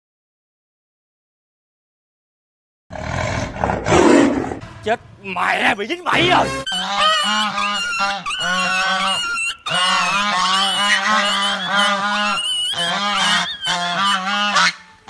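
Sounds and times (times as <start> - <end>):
goose honking: 4.6 - 15.0.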